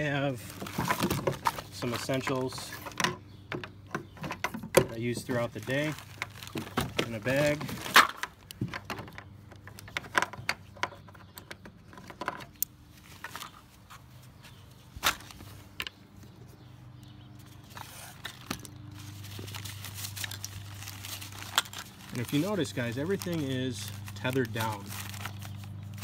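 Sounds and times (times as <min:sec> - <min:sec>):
mesh bag rustling: 0:05.0 - 0:08.4, 0:17.6 - 0:26.0.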